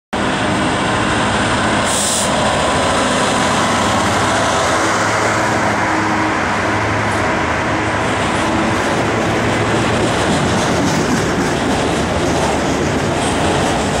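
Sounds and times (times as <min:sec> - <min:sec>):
diesel locomotive passing: 0:00.1 - 0:14.0
short hiss: 0:01.9 - 0:02.3.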